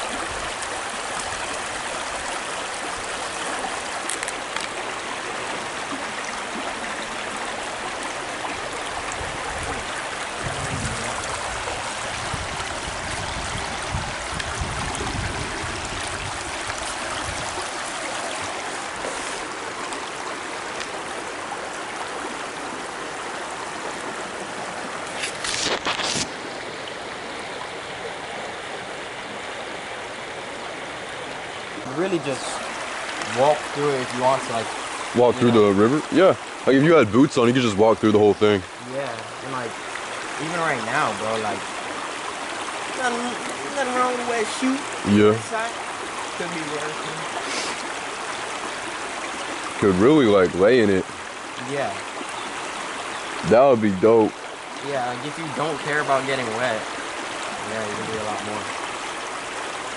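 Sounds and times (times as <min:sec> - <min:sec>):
water flowing over rocks: 0:00.0 - 0:59.9
low rumbling: 0:09.2 - 0:17.7.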